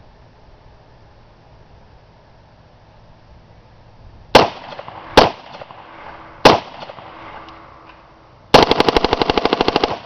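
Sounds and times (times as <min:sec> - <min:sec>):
rifle shots with echo: 0:04.4 - 0:07.5, 0:08.5 - 0:10.0
rapid automatic gunfire burst: 0:08.5 - 0:10.0.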